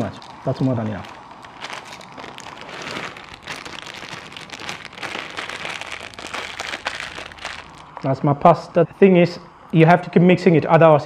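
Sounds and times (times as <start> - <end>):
pasta pouring into pot: 0.0 - 8.0
water boiling in a pot: 0.0 - 8.0
plastic bag crinkling: 0.0 - 8.1.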